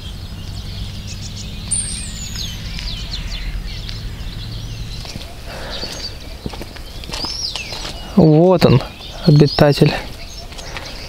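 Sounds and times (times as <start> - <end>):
low steady hum: 0.0 - 7.2
wild birds chirping and whistling: 0.0 - 11.0.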